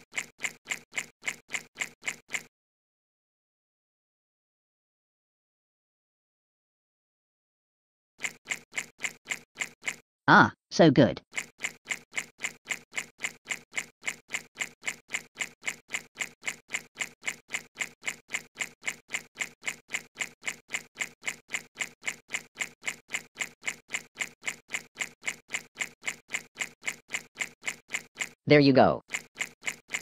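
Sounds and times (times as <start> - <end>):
looping electronic sound effect: 8.2 - 10.0, 10.8 - 30.0.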